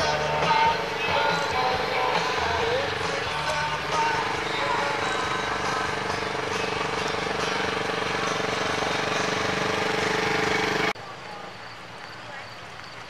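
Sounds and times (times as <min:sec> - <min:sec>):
utility vehicle engine driving past: 0:00.0 - 0:11.0.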